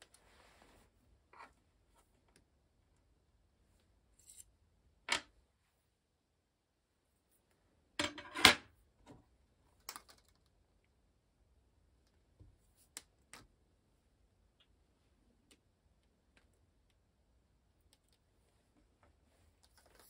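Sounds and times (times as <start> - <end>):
soft rub: 0.1 - 1.1.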